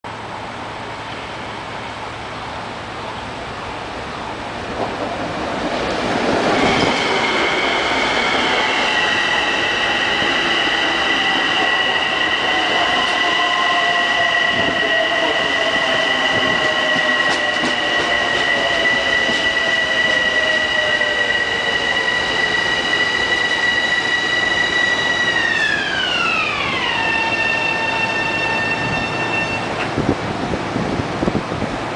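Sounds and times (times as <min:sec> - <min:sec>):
electric train braking whine: 0:06.2 - 0:29.9.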